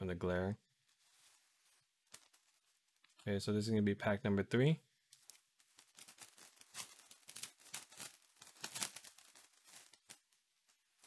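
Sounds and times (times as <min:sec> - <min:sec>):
foil wrapper tearing and crinkling: 0:05.7 - 0:10.3.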